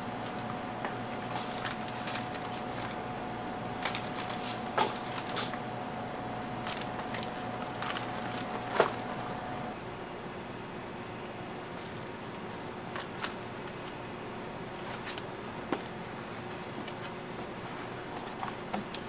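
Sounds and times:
plastic wrapper crinkling: 0:01.3 - 0:03.0, 0:03.7 - 0:05.6, 0:06.6 - 0:09.3.

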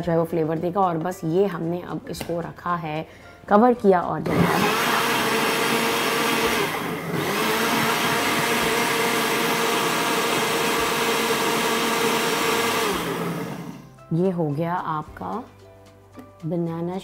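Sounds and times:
blender motor running: 0:04.2 - 0:13.9.

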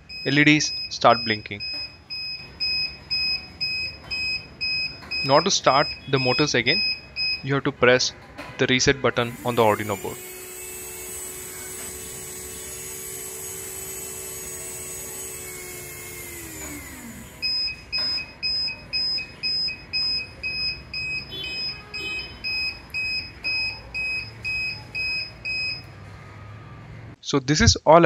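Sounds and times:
buzzer beeping: 0:00.0 - 0:07.7, 0:08.6 - 0:26.1
small motors whining: 0:09.2 - 0:27.2.

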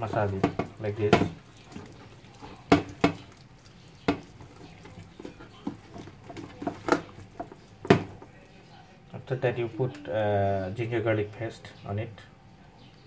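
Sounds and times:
palm slapping meat: 0:00.0 - 0:08.3
wet rubbing of raw meat: 0:00.0 - 0:08.6.

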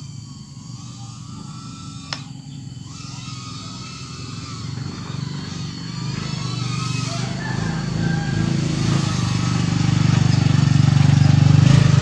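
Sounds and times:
drone motors whining: 0:00.0 - 0:12.0
sharp click: 0:02.0 - 0:02.3.

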